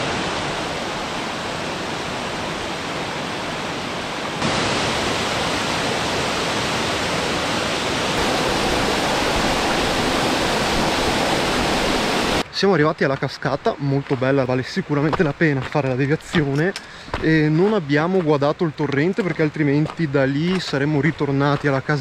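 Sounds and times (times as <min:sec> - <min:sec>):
waterfall rushing: 0:00.0 - 0:12.4.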